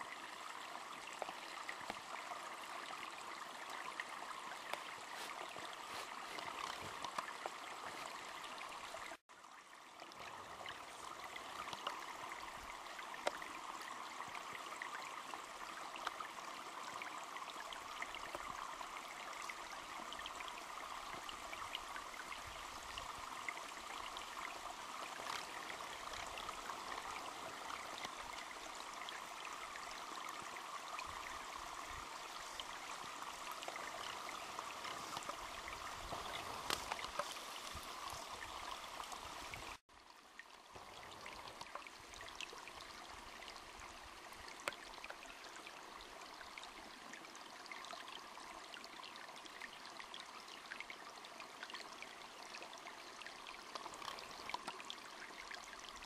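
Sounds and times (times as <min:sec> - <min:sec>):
small clicks and crackles: 0:04.6 - 0:08.5, 0:11.6 - 0:12.1, 0:25.0 - 0:28.2, 0:33.4 - 0:39.2, 0:53.6 - 0:54.9.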